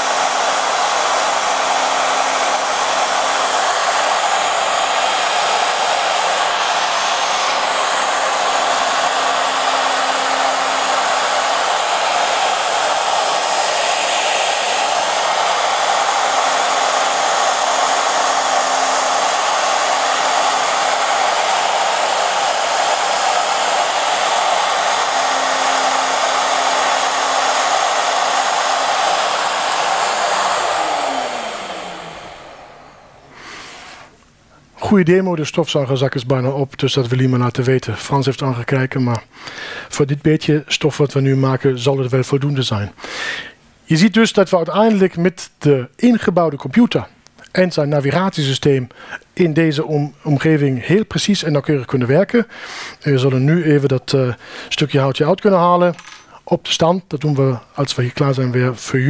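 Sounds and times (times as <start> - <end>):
motor spinning down whine: 0.0 - 33.9
dust extraction running: 0.0 - 34.1
router cutting wood: 0.0 - 34.2.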